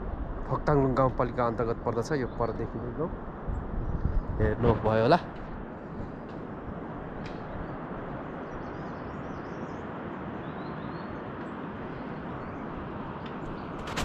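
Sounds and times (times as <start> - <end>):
faint high bird chirps: 8.4 - 12.8
outdoor rushing noise: 11.6 - 14.0.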